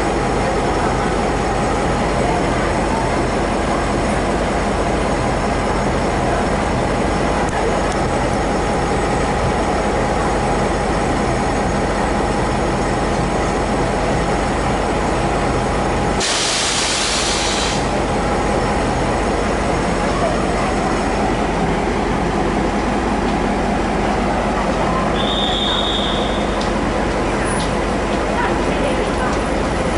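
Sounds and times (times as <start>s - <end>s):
diesel locomotive engine drone: 0.0s - 29.9s
loud hiss: 16.2s - 18.0s.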